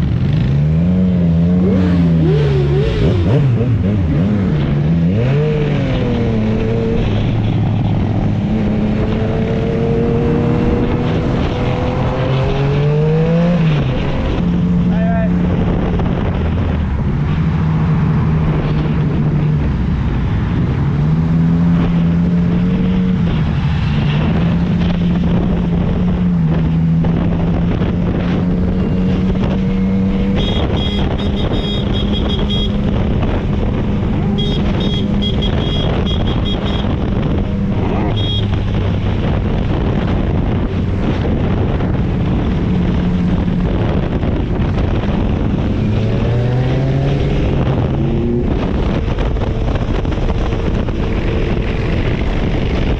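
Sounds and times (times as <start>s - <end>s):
wind on microphone: 0.0s - 52.9s
motorcycle engine running: 27.1s - 45.9s.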